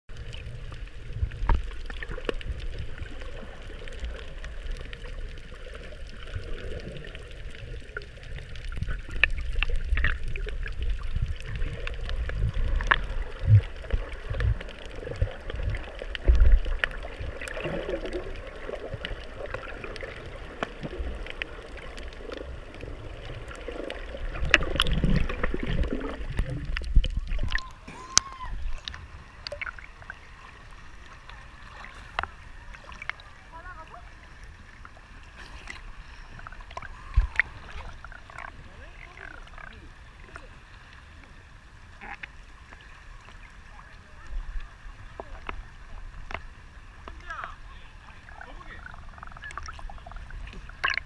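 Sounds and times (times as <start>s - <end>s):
underwater rumble and gurgling: 0.1s - 51.0s
faint clicks: 3.6s - 33.3s.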